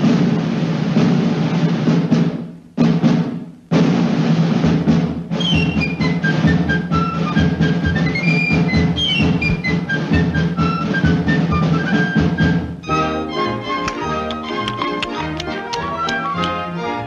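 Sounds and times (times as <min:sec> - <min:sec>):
drum roll: 0:00.0 - 0:16.8
timpani strokes: 0:00.0 - 0:17.0
orchestral cartoon music: 0:05.3 - 0:17.0.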